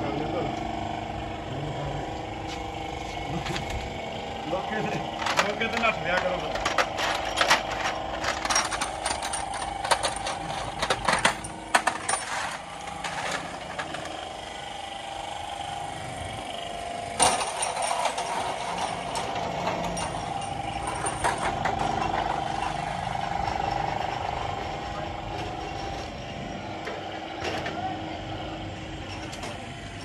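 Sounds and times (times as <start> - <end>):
steady hum: 0.0 - 30.0
metal tools clinking on metal: 4.6 - 14.2, 17.2 - 22.8.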